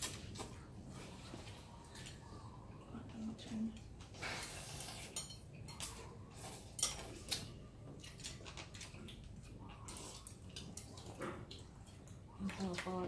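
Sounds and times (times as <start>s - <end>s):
chopsticks and spoons clinking bowls: 3.7s - 13.0s.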